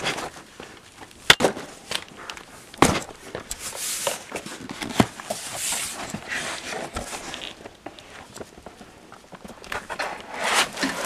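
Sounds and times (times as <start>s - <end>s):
rustling scrapes: 1.6s - 9.0s, 9.7s - 11.0s.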